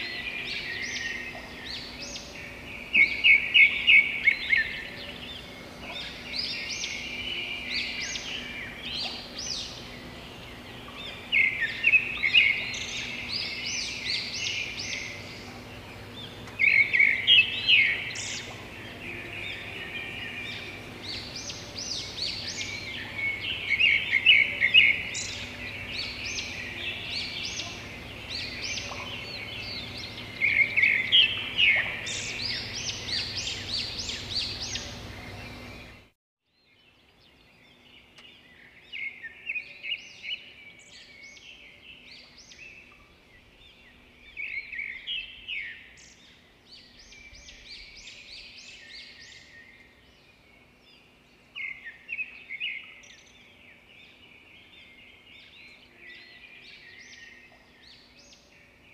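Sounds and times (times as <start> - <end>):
faint low hum: 0.0 - 36.1
songbird chirping: 0.0 - 58.9.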